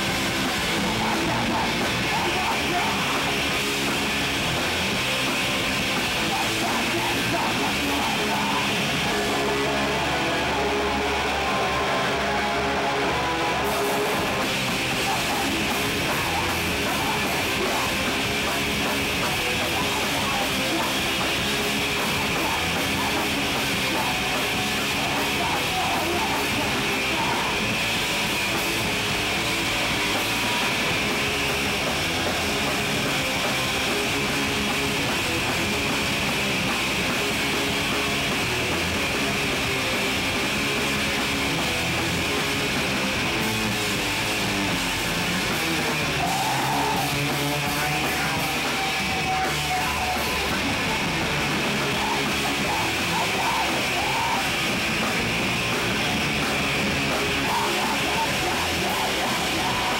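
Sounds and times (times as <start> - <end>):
distorted electric guitars: 0.0 - 59.9
punk band playing: 0.0 - 59.9
singer shouting: 0.6 - 3.5, 6.1 - 27.8, 45.4 - 59.9.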